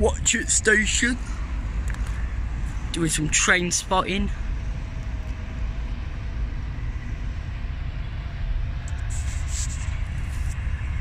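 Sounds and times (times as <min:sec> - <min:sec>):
diesel locomotive rumble: 0:00.0 - 0:11.0
short hiss: 0:09.0 - 0:10.6.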